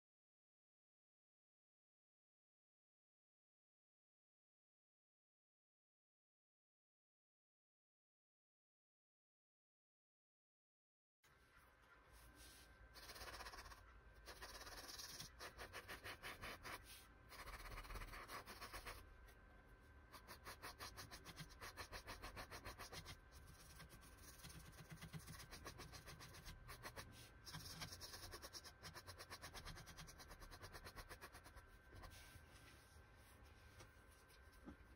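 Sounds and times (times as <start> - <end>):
paintbrush scratching on canvas: 12.3 - 19.0, 20.1 - 34.8.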